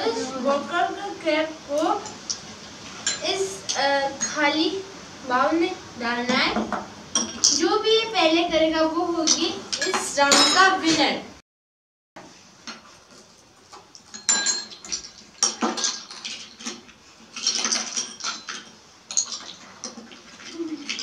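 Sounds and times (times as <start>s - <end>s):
spoons clinking on ceramic bowls: 3.0s - 3.3s, 9.3s - 10.7s, 14.1s - 16.0s, 17.4s - 19.6s.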